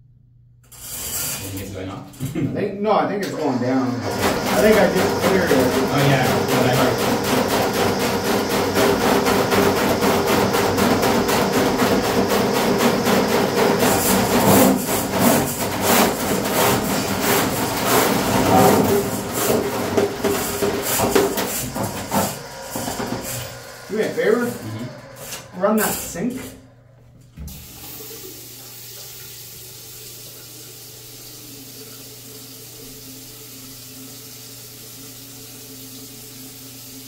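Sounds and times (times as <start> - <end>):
cable scraping inside pipe: 0.7 - 1.7, 4.0 - 26.5
drain machine motor humming: 1.4 - 37.0.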